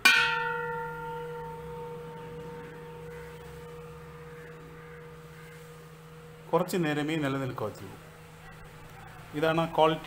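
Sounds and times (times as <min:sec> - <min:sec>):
metal vessel ringing like bell: 0:00.0 - 0:06.7.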